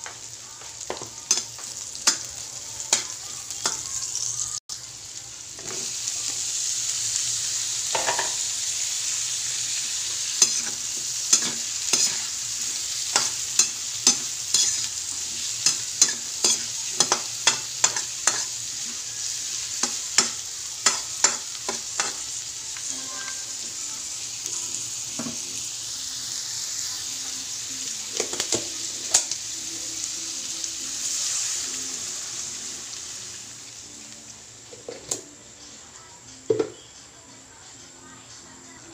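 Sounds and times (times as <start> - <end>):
vegetables sizzling in oil: 0.0 - 35.5
metal spatula scraping wok: 10.2 - 19.1.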